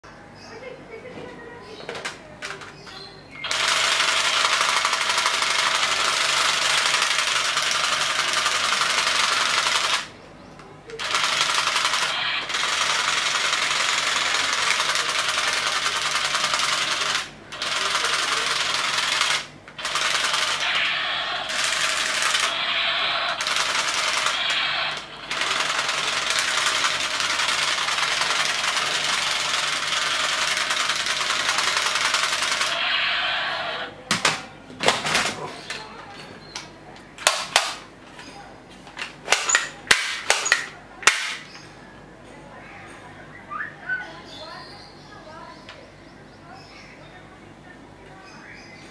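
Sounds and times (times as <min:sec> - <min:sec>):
toy pistol machine-gun rattling: 0:03.5 - 0:10.1, 0:11.0 - 0:33.2, 0:39.3 - 0:41.5.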